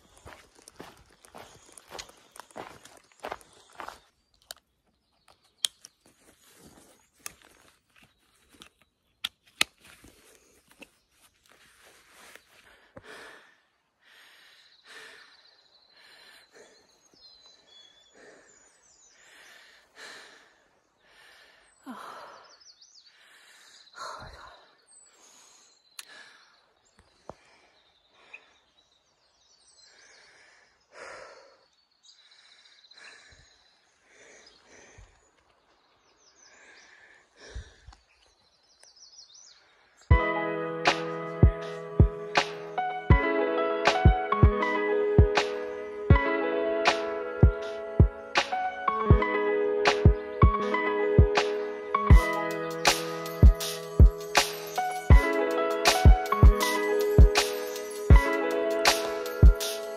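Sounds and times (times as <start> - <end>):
footsteps: 0.0 - 4.0
heavy breathing: 12.5 - 28.7, 29.8 - 35.4, 36.4 - 38.2.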